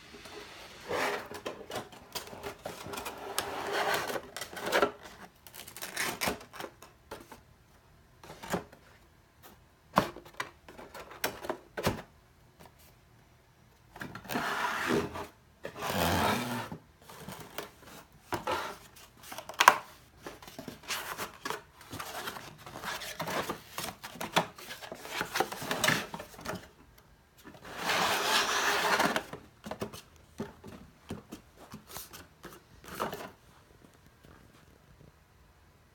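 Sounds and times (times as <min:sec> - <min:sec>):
cardboard rustling and scraping: 0:00.2 - 0:06.5, 0:14.1 - 0:26.8, 0:27.4 - 0:34.8.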